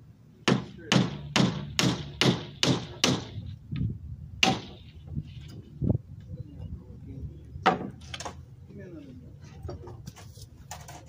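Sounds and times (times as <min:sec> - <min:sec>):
hammer driving nails into wood: 0:00.4 - 0:03.4.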